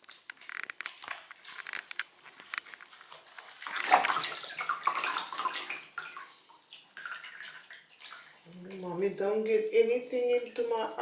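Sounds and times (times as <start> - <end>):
water splashing in a bathtub: 0.0 - 11.0.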